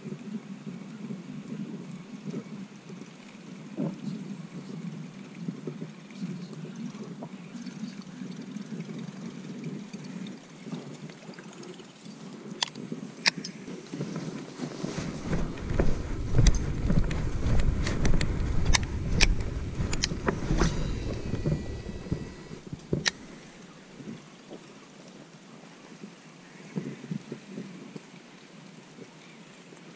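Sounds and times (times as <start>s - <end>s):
clothing rubbing on microphone: 12.4s - 24.2s
pushing through grass and bushes: 13.3s - 23.6s.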